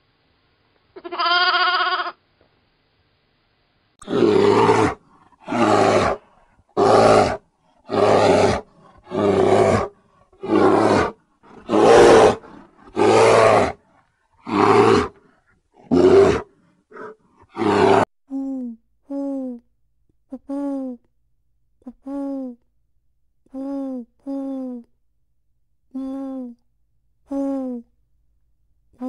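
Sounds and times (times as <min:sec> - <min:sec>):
lamb bleating: 0:01.0 - 0:02.2
deep animal roar: 0:04.0 - 0:18.1.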